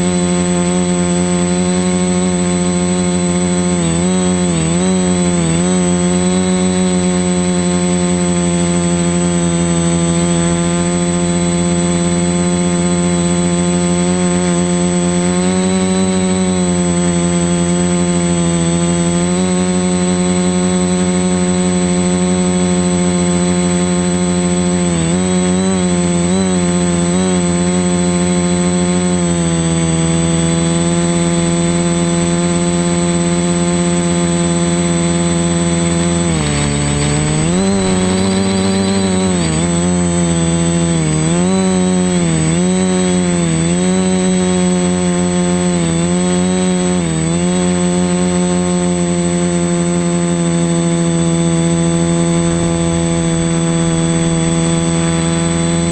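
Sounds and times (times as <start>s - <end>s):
model aircraft motor and propeller: 0.0s - 55.9s
thin high whine: 33.0s - 43.4s, 50.4s - 55.9s.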